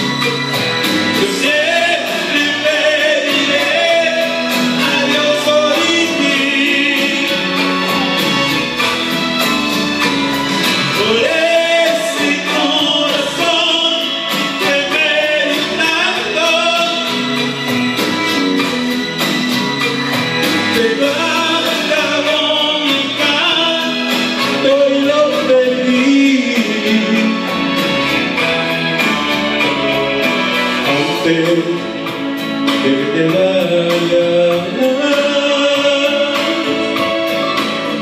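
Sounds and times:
backing track with steady beat: 0:00.0 - 0:38.0
man singing into a microphone: 0:01.0 - 0:08.9, 0:10.8 - 0:17.6, 0:20.6 - 0:28.8, 0:30.7 - 0:38.0.

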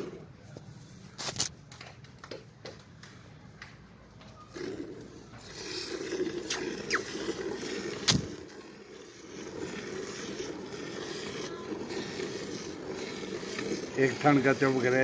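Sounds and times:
milk squirting into steel bucket: 0:05.4 - 0:15.0.

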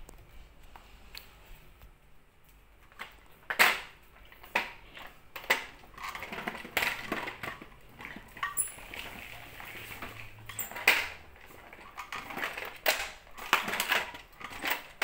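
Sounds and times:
kick scooter scraping on tiles: 0:04.4 - 0:15.0.

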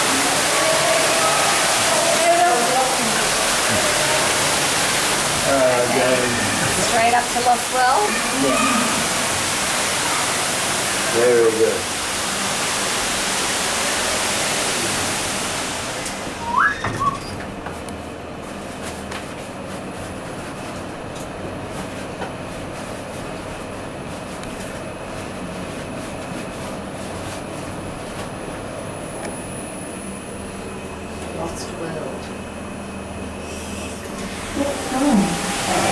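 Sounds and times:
rushing hiss through lift doors: 0:00.0 - 0:17.4, 0:33.4 - 0:35.9
lift car humming: 0:28.8 - 0:35.9
faint high whine: 0:29.0 - 0:35.9.

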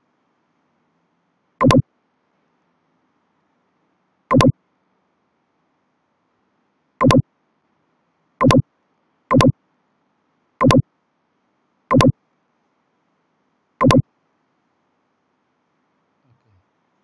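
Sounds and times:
computer mouse clicks: 0:01.6 - 0:01.8, 0:04.3 - 0:04.5, 0:07.0 - 0:07.2, 0:08.4 - 0:08.6, 0:09.3 - 0:09.6, 0:10.6 - 0:10.8, 0:11.9 - 0:12.2, 0:13.8 - 0:14.0.

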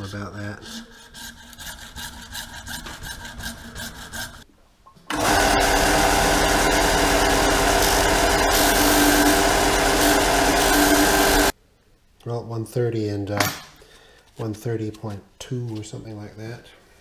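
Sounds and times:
hacksaw cutting tube: 0:00.7 - 0:04.4
belt sander grinding: 0:05.1 - 0:11.5.

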